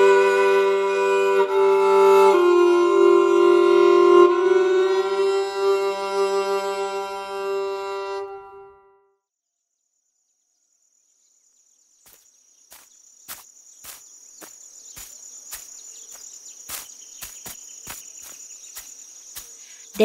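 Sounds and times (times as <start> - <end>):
crickets chirping: 0.0 - 8.2, 9.4 - 20.0
fiddle tune: 0.0 - 9.1.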